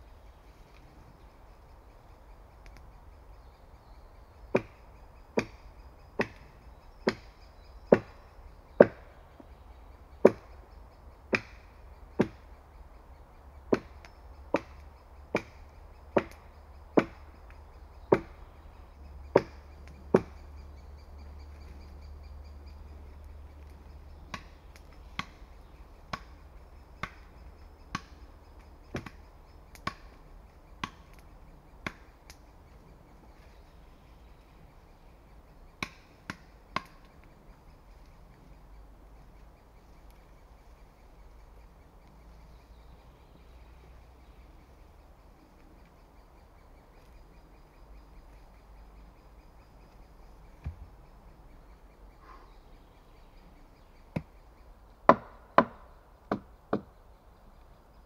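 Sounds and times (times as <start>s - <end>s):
axe chopping wood: 4.5s - 4.8s, 5.4s - 5.6s, 6.2s - 7.3s, 7.9s - 8.2s, 8.8s - 9.1s, 10.2s - 10.5s, 11.3s - 11.6s, 12.2s - 12.4s, 13.7s - 15.6s, 16.2s - 16.4s, 17.0s - 17.3s, 18.1s - 18.4s, 19.3s - 20.4s, 24.3s - 24.5s, 26.1s - 26.4s, 27.0s - 27.3s, 27.9s - 28.2s, 28.9s - 29.2s, 29.8s - 30.1s, 30.8s - 31.2s, 31.8s - 32.1s, 35.8s - 37.0s, 55.1s - 56.9s.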